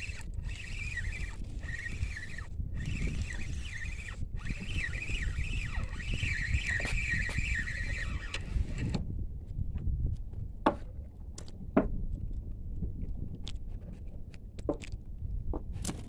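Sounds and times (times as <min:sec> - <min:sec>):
fishing reel whirring: 0:00.0 - 0:09.0
rumbling wind: 0:00.0 - 0:16.0.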